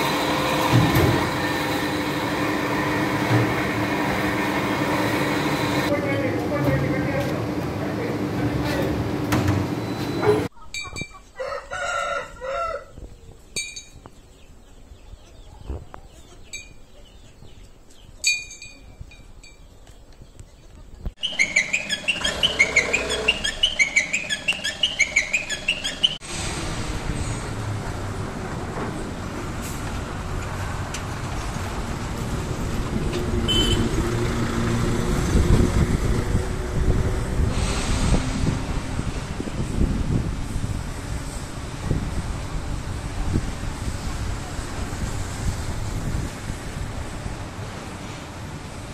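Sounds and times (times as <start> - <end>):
rooster crowing: 11.4 - 13.0
chickens clucking: 14.6 - 18.0
quick repeated chirping: 21.2 - 26.2
wind-like rumble: 35.1 - 47.7.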